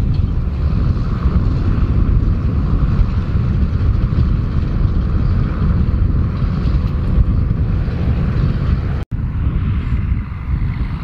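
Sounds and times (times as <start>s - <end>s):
tractor diesel engine rumbling: 0.0s - 11.0s.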